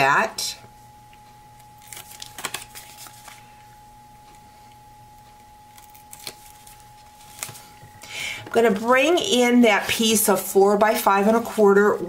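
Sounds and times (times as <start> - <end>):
faint steady hum: 0.0 - 12.0
hands rustling cardstock: 1.8 - 3.5, 5.8 - 7.8.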